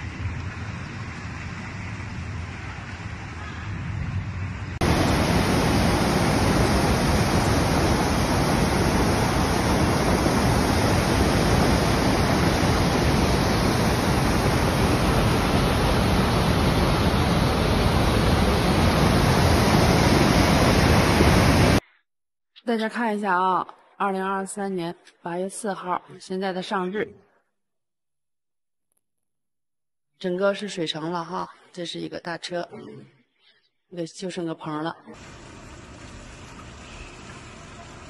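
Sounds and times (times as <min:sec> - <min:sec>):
floodwater rushing: 0:04.8 - 0:21.8.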